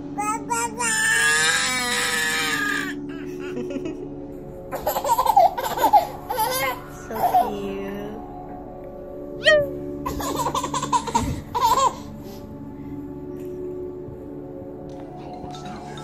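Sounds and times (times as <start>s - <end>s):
background music: 0.0s - 16.0s
baby laughing: 2.8s - 4.0s, 4.7s - 7.5s, 10.0s - 12.1s.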